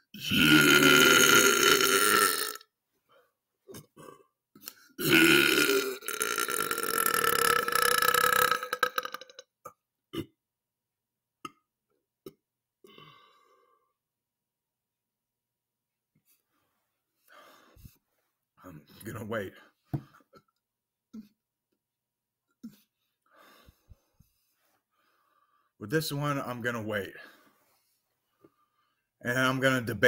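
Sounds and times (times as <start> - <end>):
man belching loudly: 0.1 - 2.7, 5.0 - 10.4.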